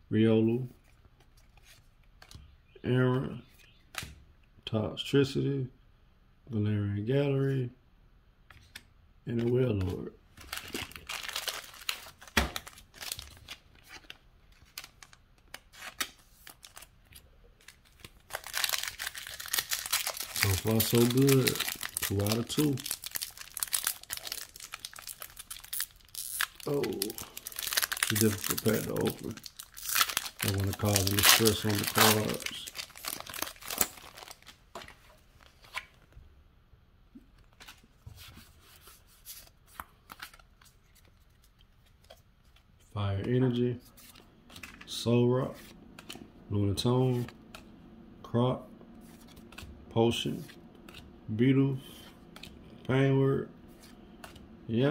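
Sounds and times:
cards clicking and rustling: 8.5s - 36.0s
foil wrapper crinkling: 10.4s - 35.8s
cards clicking and sliding: 49.1s - 51.1s, 53.7s - 54.5s.

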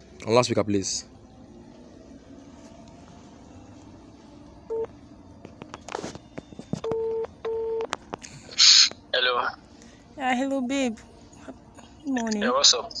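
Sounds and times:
phone beep: 6.8s - 7.9s.

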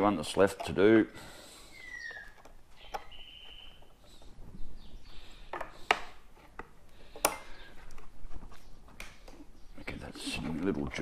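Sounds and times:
tools clicking and knocking on wood: 0.0s - 1.0s, 2.0s - 4.3s, 5.4s - 9.5s.

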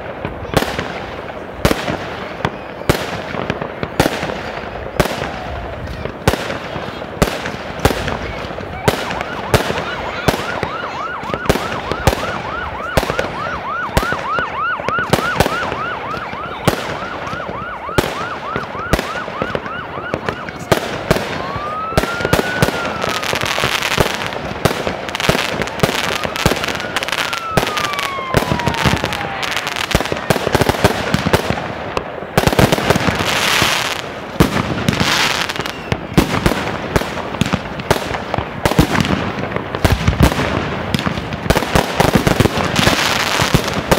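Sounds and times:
firework bangs: 0.0s - 43.9s
firework crackling: 0.0s - 43.9s
short firework whistles: 35.1s - 36.2s.

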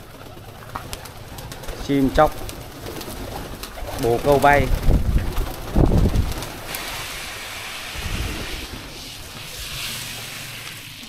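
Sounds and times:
pellets pattering on water: 0.7s - 11.0s
wind rumbling on microphone: 3.6s - 10.3s.

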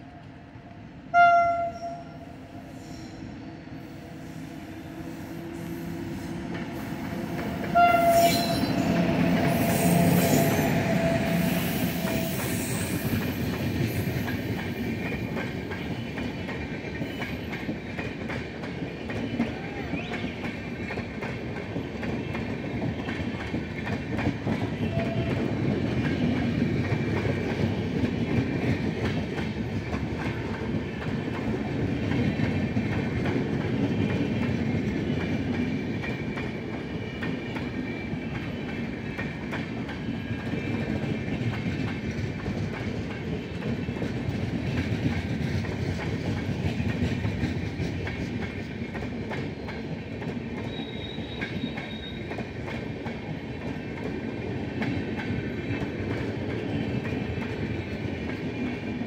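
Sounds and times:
train coaches rumbling past: 0.0s - 59.0s
locomotive horn blast: 1.1s - 2.3s, 7.6s - 8.9s.

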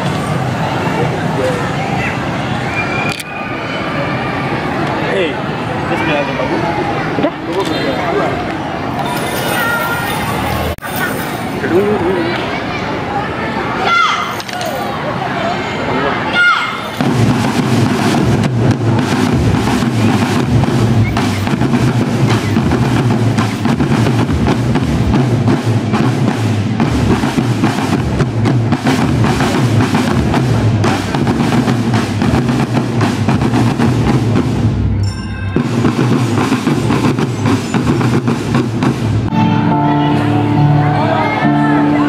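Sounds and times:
marching bass drums: 17.0s - 39.3s.

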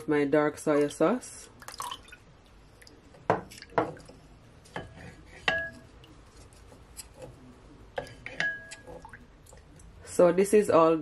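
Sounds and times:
spoon stirring thick sauce: 0.8s - 10.0s
spoon knocking glass bowl: 5.5s - 5.9s.

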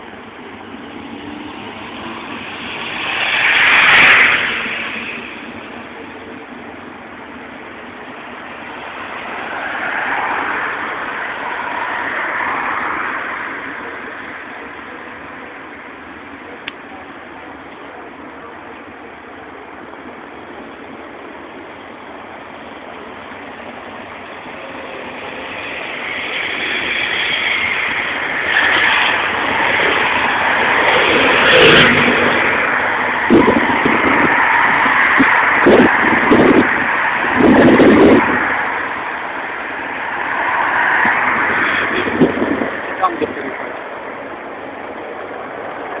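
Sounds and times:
low wind buffeting: 0.0s - 46.0s
vehicles passing close by: 0.0s - 46.0s
car driving past: 0.9s - 6.0s, 8.6s - 15.0s, 24.6s - 44.6s.

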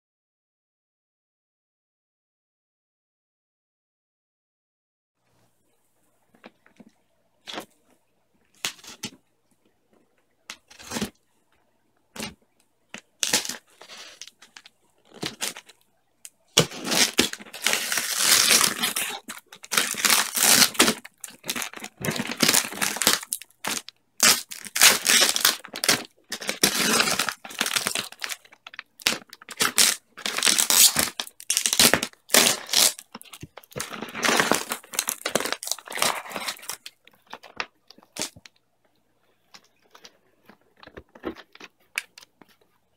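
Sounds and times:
paper and tape tearing: 10.6s - 11.1s, 13.0s - 15.7s, 16.6s - 36.9s.

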